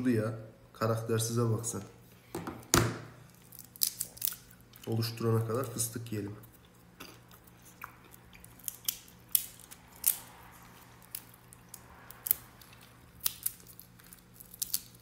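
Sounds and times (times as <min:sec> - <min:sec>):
nut shells cracking: 0:03.3 - 0:05.0, 0:07.9 - 0:15.0.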